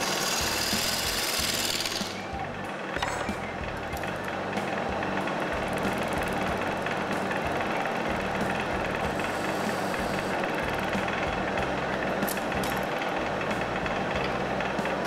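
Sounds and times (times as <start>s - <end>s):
wood lathe running: 0.0s - 15.0s.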